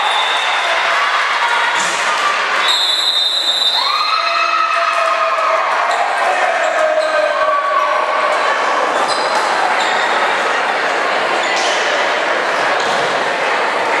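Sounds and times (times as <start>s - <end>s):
crowd chatter: 0.0s - 14.0s
crowd yelling and cheering: 0.0s - 14.0s
sneakers squeaking: 9.0s - 10.4s.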